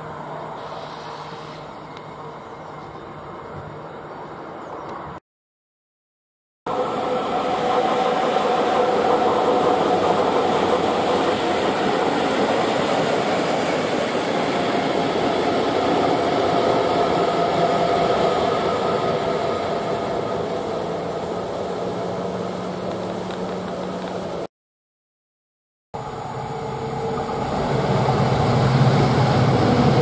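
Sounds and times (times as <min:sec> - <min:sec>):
freight train rumbling past: 0:06.7 - 0:24.5, 0:26.0 - 0:30.0.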